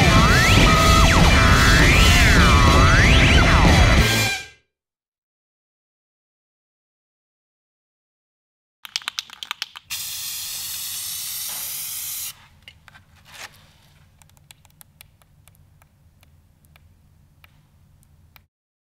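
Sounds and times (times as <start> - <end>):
spray can rattle: 8.9 - 12.4
spray paint hissing: 9.9 - 12.4.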